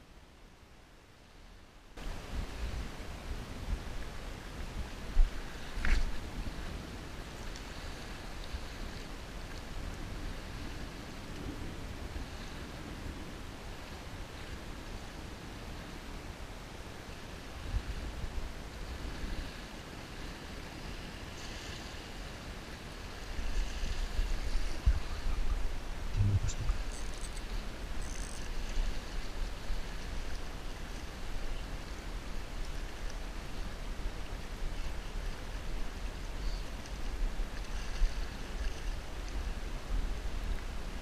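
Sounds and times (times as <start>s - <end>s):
wind rumbling on microphone: 2.0s - 16.3s, 17.3s - 41.0s
wind buffeting microphone: 23.5s - 28.0s.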